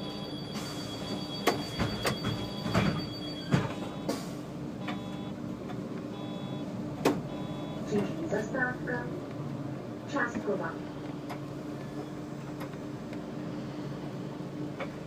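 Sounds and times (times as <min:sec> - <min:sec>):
bus engine idling: 0:00.0 - 0:15.0.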